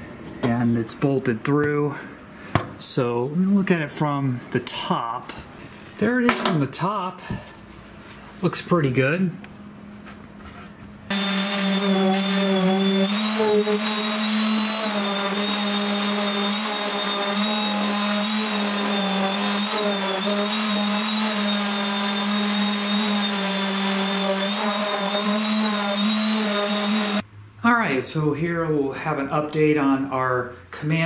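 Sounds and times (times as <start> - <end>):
orbital sander running: 11.1 - 27.2.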